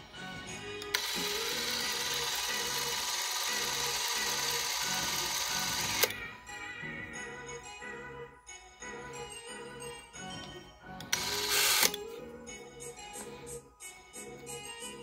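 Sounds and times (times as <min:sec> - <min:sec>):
background music: 0:00.0 - 0:15.0
film camera motor running: 0:00.9 - 0:06.1, 0:11.2 - 0:12.0.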